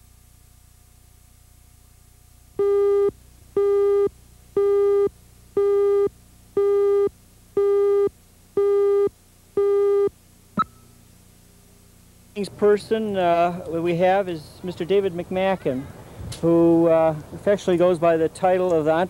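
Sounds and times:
buzzy countdown beeps: 2.6 - 11.0.

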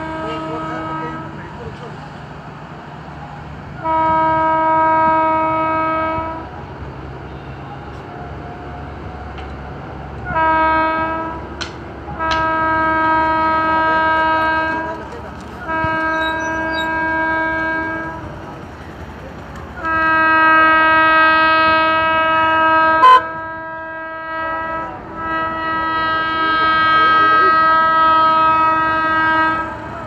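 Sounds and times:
locomotive horn blasts: 0.0 - 1.6, 3.8 - 9.5, 10.1 - 18.5, 19.8 - 30.0.

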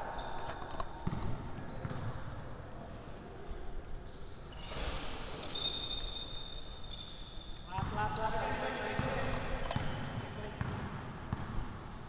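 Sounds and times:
sneaker squeaks: 0.0 - 12.0
basketball bouncing on indoor court: 0.1 - 2.6, 7.6 - 12.0.

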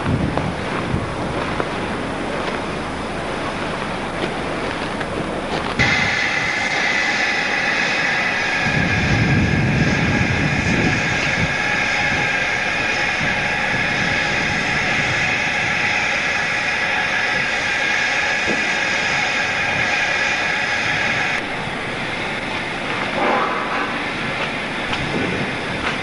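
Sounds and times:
steam locomotive rumbling: 0.0 - 26.0
steam hissing: 5.8 - 26.0.

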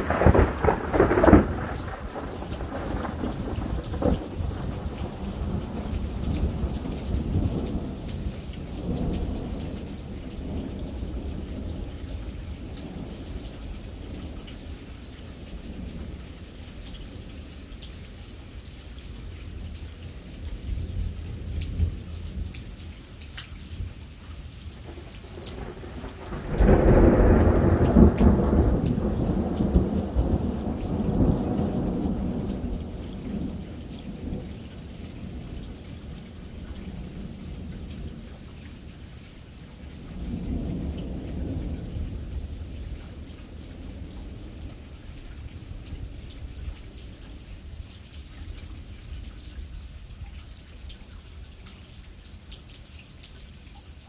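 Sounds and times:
loud thunderclap: 0.0 - 5.8, 25.3 - 33.5
thunder rumbling: 0.0 - 14.4, 24.8 - 38.2
steady rain: 0.0 - 54.0.

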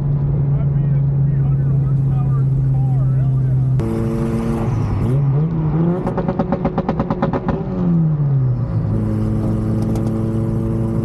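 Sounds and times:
car engine revving: 0.2 - 11.0
rapid engine chatter: 0.5 - 5.1.

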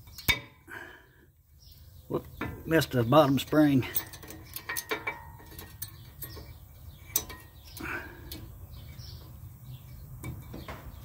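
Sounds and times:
metallic clicks of brake pads: 3.4 - 11.0.

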